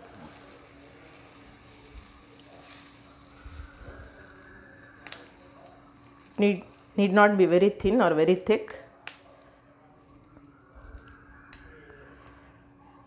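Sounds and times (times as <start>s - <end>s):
soft hiss: 0.0s - 7.3s.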